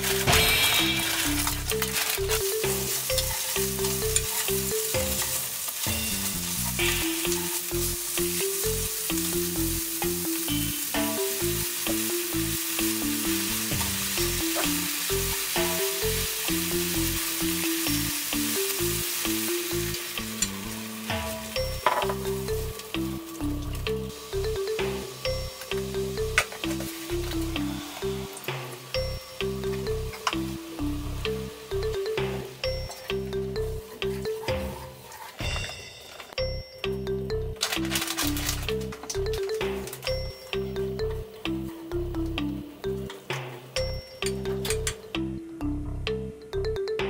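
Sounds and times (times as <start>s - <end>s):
chopsticks stirring in pan: 0.0s - 28.5s, 32.7s - 36.4s
food sizzling in frying pan: 0.0s - 36.2s
background music: 0.0s - 47.0s.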